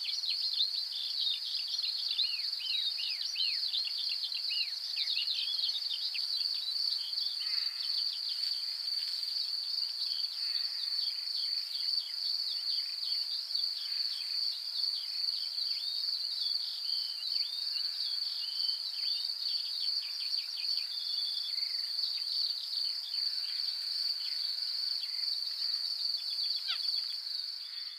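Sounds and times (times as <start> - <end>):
insects trilling: 0.0 - 27.9.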